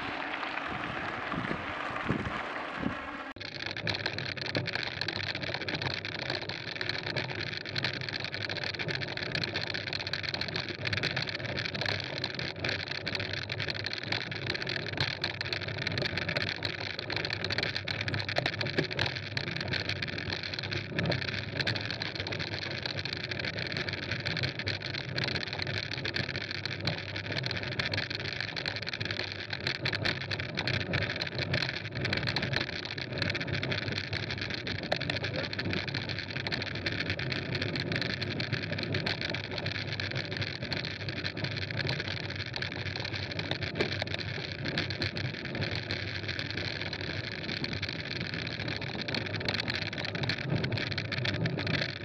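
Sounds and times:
bike tyres rolling on gravel: 0.0 - 5.2
gravel clicks and bike rattles: 0.0 - 52.0.

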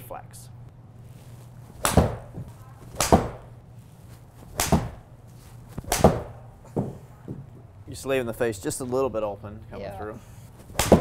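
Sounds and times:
ball hitting simulator screen: 1.7 - 3.6, 4.4 - 5.1, 5.7 - 7.7, 10.6 - 11.0
golf club striking ball: 4.5 - 5.0, 5.8 - 6.4.

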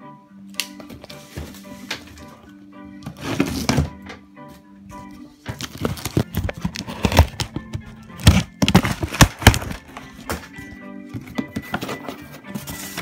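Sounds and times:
faint background music: 0.0 - 13.0
cardboard box being torn open: 5.6 - 7.6, 8.2 - 10.0.

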